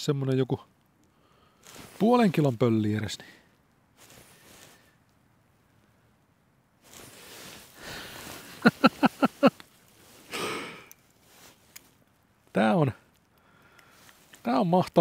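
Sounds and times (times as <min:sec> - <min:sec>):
breathy exhale: 0:01.1 - 0:01.8, 0:07.0 - 0:08.6, 0:10.2 - 0:11.0, 0:13.4 - 0:14.1
man chuckling: 0:08.4 - 0:09.6.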